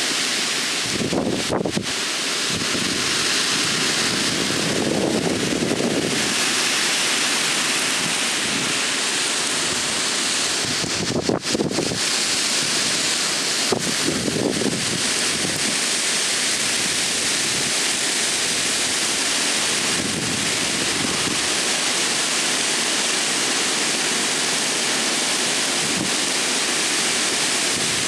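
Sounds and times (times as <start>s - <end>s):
gusting wind: 0.0s - 23.4s, 25.4s - 28.0s
heavy rain through trees: 0.0s - 28.0s
wind buffeting microphone: 0.8s - 6.5s, 9.6s - 12.1s, 13.6s - 15.8s, 19.7s - 21.5s.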